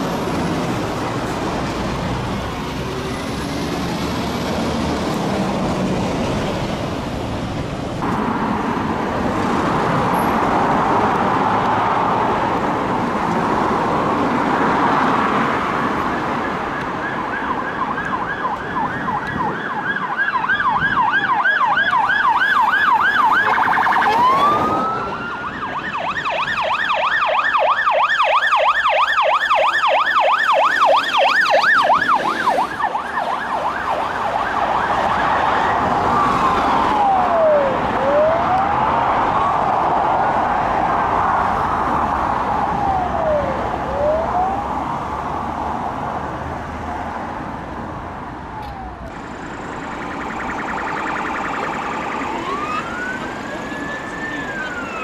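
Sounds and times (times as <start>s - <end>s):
police siren wail: 0.0s - 55.0s
road traffic: 0.0s - 55.0s
police siren yelp: 15.4s - 45.2s, 48.4s - 55.0s.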